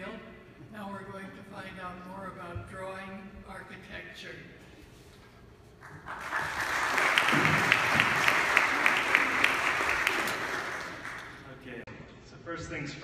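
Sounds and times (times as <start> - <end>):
sharp claps close by: 5.8 - 11.4
audience applauding: 5.8 - 11.6.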